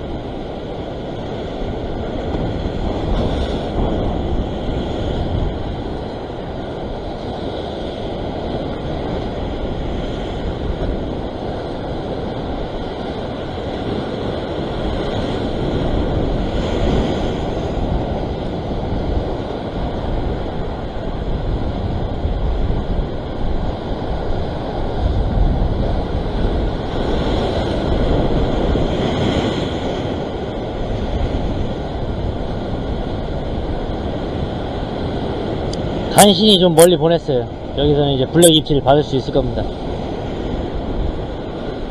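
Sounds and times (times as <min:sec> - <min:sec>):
ocean surf breaking over rocks: 0:00.0 - 0:41.9
wind buffeting microphone: 0:00.0 - 0:41.9.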